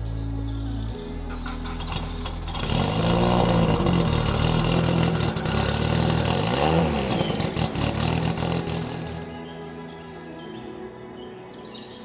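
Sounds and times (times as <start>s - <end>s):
car engine idling: 1.3s - 9.3s
engine revving: 1.3s - 9.4s.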